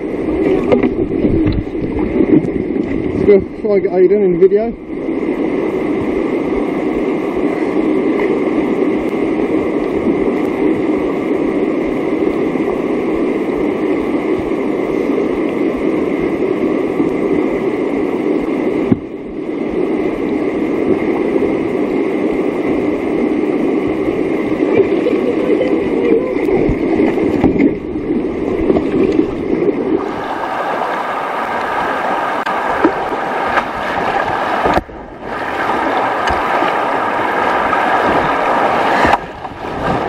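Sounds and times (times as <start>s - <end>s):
whitewater rapids rushing over boulders: 19.8s - 40.0s.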